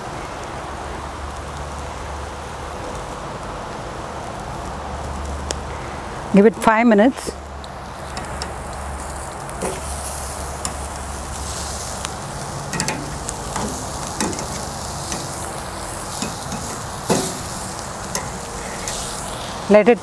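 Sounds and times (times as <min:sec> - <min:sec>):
meat sizzling on a grill: 0:00.1 - 0:06.4, 0:07.1 - 0:20.0
metal tongs scraping grill grate: 0:07.8 - 0:19.9.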